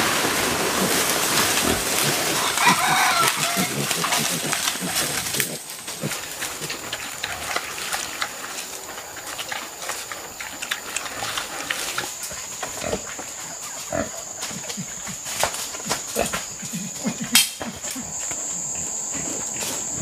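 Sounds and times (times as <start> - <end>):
rustling in undergrowth: 0.0 - 17.0
pig grunting: 0.6 - 8.4, 16.1 - 20.0.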